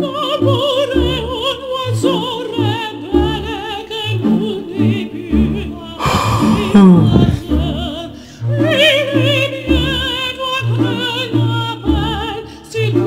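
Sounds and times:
high singing voice with vibrato: 6.0s - 7.7s.

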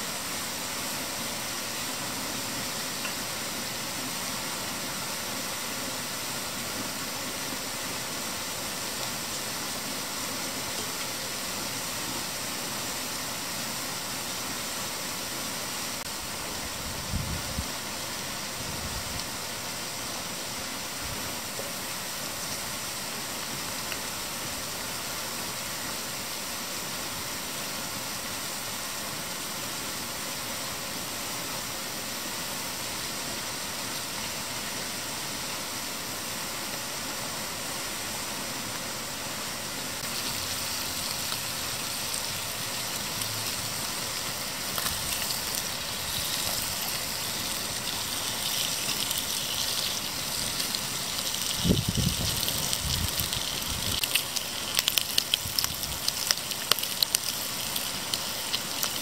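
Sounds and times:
flowing water rushing: 0.0s - 17.0s, 17.6s - 59.0s
bacon sizzling in a frying pan: 1.8s - 5.6s, 40.0s - 59.0s.

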